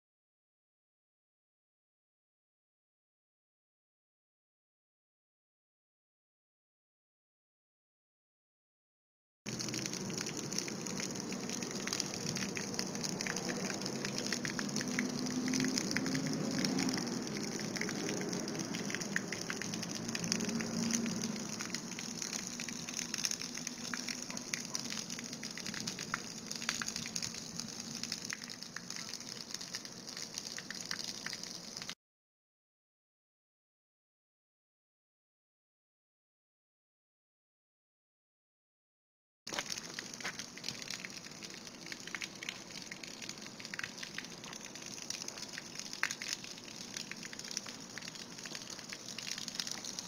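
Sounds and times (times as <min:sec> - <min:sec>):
water spattering onto pavement: 0:09.5 - 0:32.0, 0:39.5 - 0:50.0.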